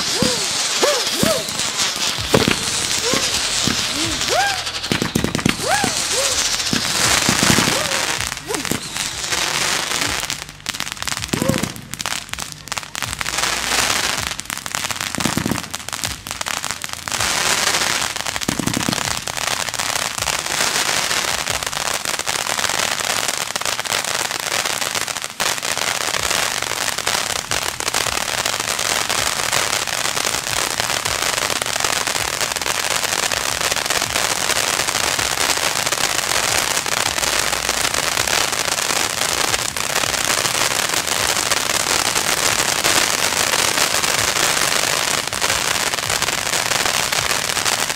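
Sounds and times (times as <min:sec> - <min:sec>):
firework dull thumps: 0:00.0 - 0:09.4
firework pops: 0:00.0 - 0:14.5, 0:15.1 - 0:16.4, 0:17.2 - 0:19.3
firework fountains hissing: 0:00.0 - 0:47.9.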